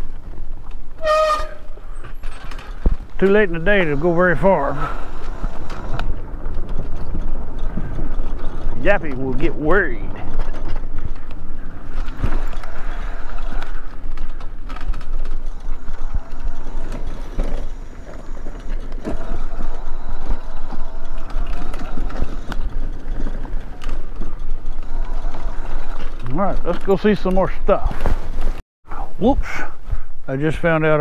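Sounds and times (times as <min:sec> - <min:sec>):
tyres rumbling on dirt: 0:00.0 - 0:28.6
scooter clicks and rattles: 0:01.6 - 0:03.8, 0:04.5 - 0:27.4
scooter motor hum: 0:03.3 - 0:26.7.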